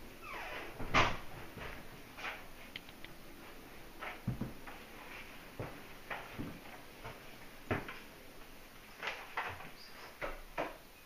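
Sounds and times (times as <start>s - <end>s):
footsteps in a house: 0.0s - 11.0s.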